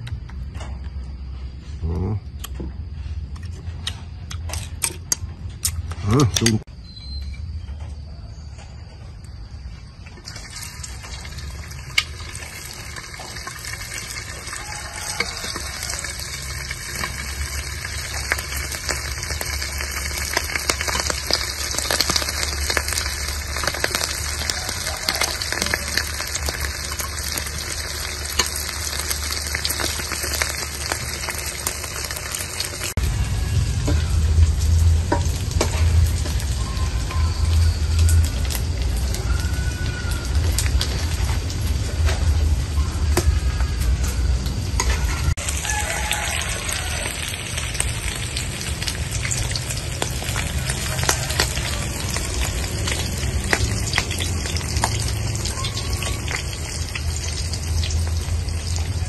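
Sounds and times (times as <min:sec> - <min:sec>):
batter sizzling in hot oil: 0:10.2 - 0:43.9, 0:44.8 - 0:59.0
low rumble: 0:15.4 - 0:45.6.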